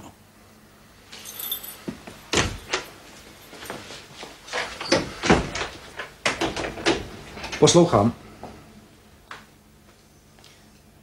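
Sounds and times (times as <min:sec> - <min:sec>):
keys jingling: 0:01.1 - 0:04.0
door shutting: 0:02.3 - 0:02.9, 0:04.5 - 0:07.8.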